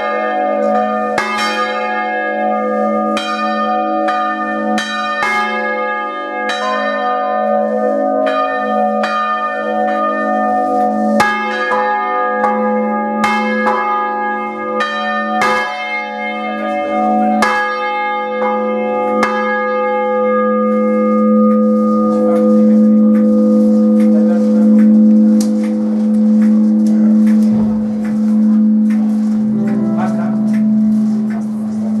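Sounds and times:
bells humming deep tone: 0.0 - 32.0
bell clapper strikes: 20.8 - 32.0.

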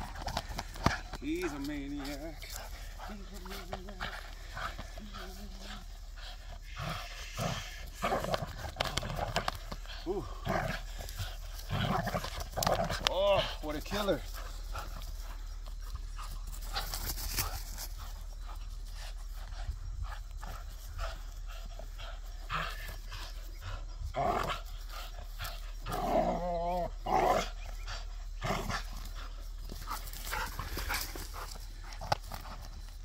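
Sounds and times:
dog play growl: 2.0 - 13.6, 19.5 - 32.5.

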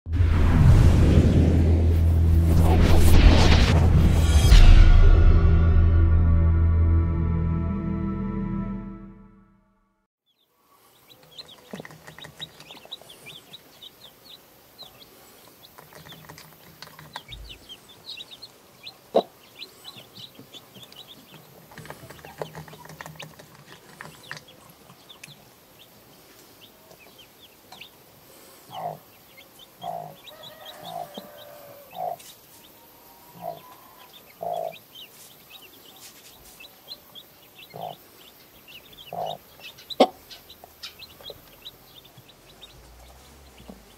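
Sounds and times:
chicks peeping: 10.3 - 43.9
hen clucking: 11.0 - 25.9, 28.7 - 43.9.

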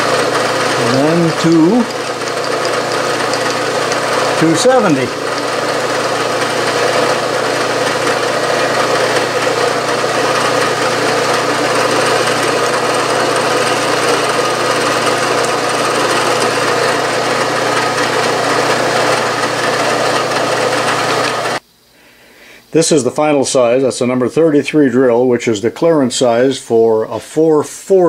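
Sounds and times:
drill cutting aluminium: 0.0 - 21.6
milling machine spindle running: 0.0 - 21.6.

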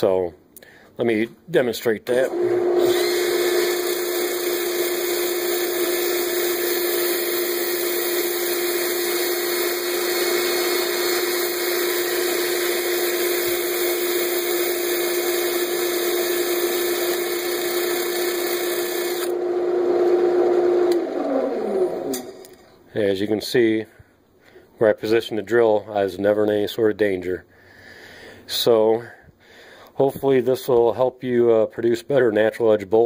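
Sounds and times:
drill motor whine: 2.2 - 22.4.

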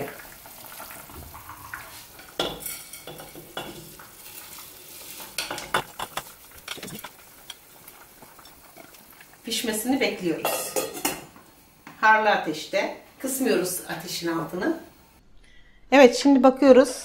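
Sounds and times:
bubbling liquid: 0.0 - 2.7, 3.5 - 11.4
grains pattering into liquid: 3.8 - 10.3.

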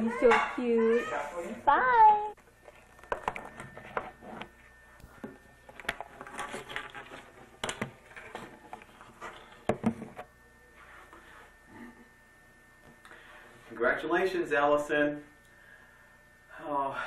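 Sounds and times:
camcorder handling noise: 2.6 - 10.3.

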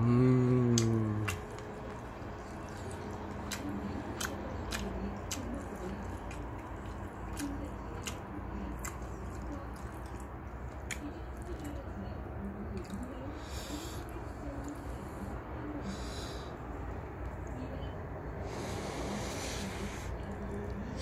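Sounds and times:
person chewing noodles: 0.0 - 14.9
low steady hum: 0.0 - 21.0.

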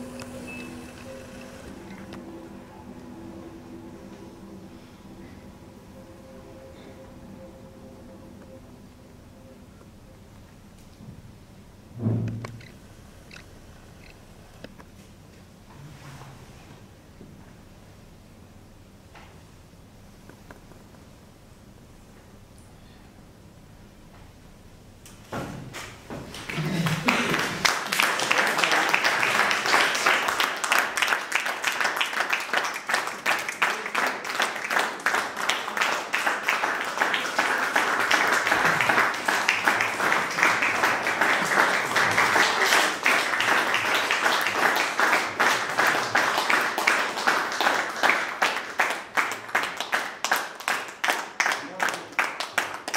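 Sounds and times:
audience applauding: 26.3 - 52.9.

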